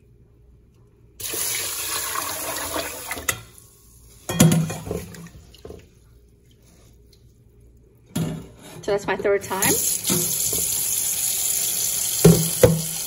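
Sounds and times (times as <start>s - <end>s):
water pouring into a pot: 1.2s - 3.6s, 9.8s - 13.0s.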